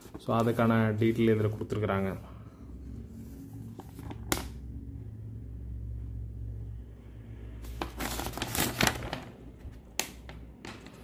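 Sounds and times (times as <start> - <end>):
paper rustling: 7.6 - 11.0.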